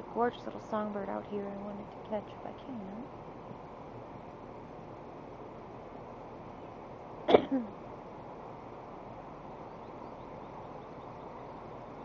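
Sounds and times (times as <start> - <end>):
songbird chirping: 9.3 - 12.0.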